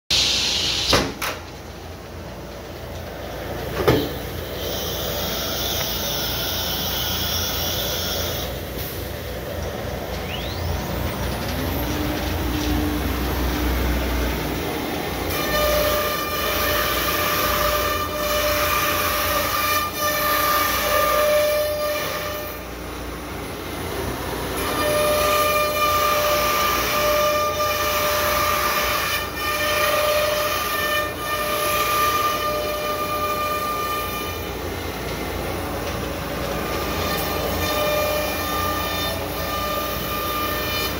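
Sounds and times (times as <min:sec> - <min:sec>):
hiss: 0:00.1 - 0:01.2.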